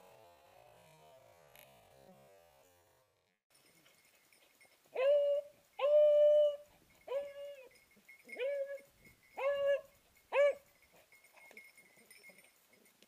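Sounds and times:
hound baying: 4.9 - 12.5.

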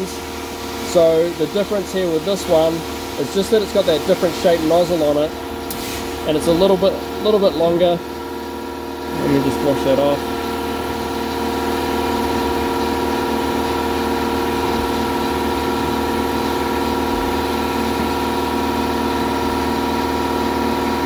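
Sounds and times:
air compressor and pump droning: 0.0 - 21.0
water spray hissing: 0.6 - 7.1.

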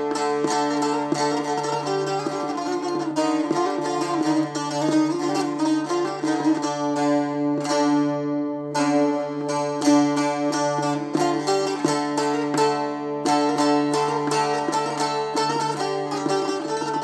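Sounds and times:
long-necked lute folk melody: 0.0 - 17.0.

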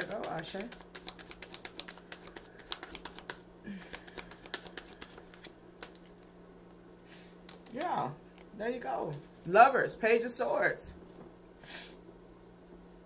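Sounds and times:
cards being shuffled: 0.0 - 6.4, 7.4 - 9.5.

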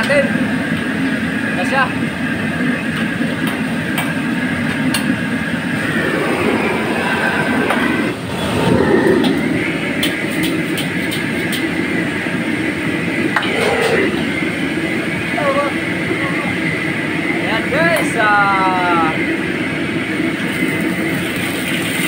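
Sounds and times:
gas burner roaring: 0.0 - 22.0
faucet water running: 20.5 - 22.0.

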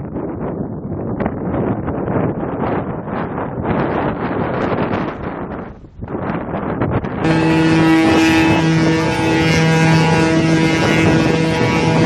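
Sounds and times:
wind buffeting microphone: 0.0 - 12.0
sea noise: 7.2 - 12.0
ship's horn blasts: 7.2 - 12.0.

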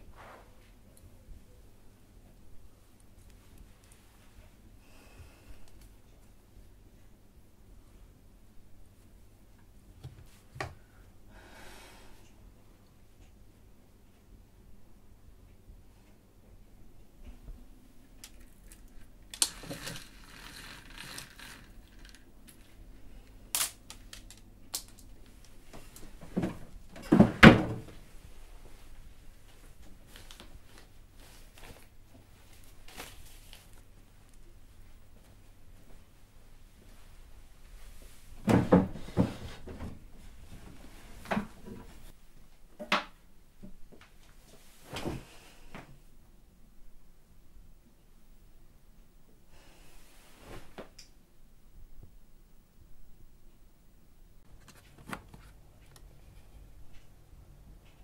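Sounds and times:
bead chain rattling: 19.4 - 22.2
drawers opening and shutting: 19.4 - 22.2, 26.2 - 28.0.

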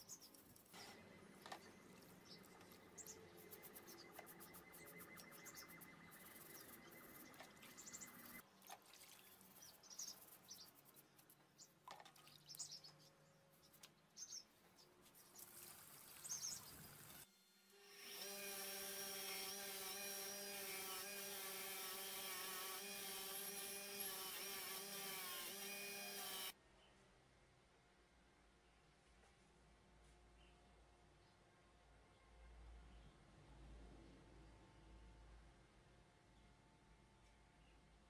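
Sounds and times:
birds chirping: 0.0 - 17.2
water sloshing in a bucket: 8.4 - 9.6
power tool motor running: 17.0 - 26.5.

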